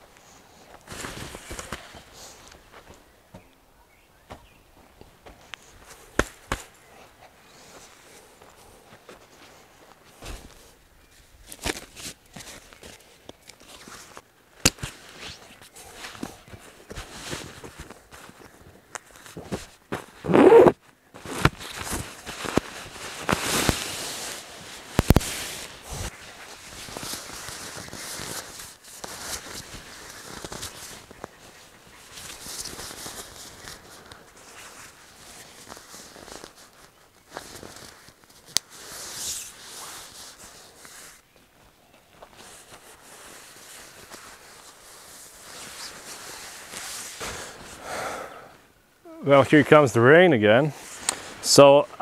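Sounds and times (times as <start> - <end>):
nylon fabric rustling: 11.2 - 31.2, 32.0 - 47.8.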